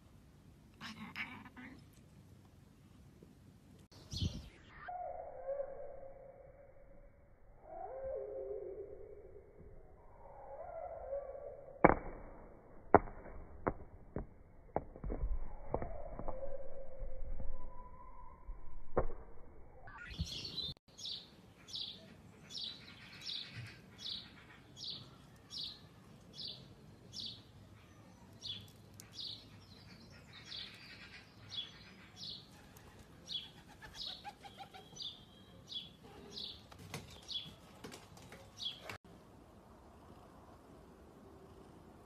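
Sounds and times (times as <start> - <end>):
bird chirping: 3.9 - 6.1, 19.8 - 37.7.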